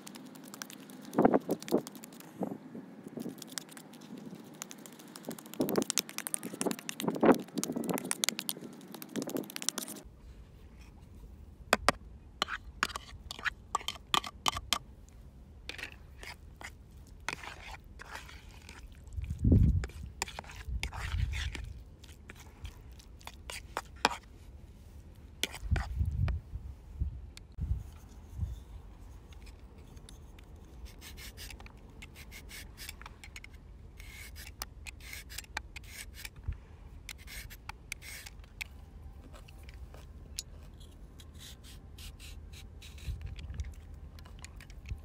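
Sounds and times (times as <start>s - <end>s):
fork scraping a plastic bowl: 15.7s - 18.9s, 19.8s - 24.3s, 25.4s - 26.0s.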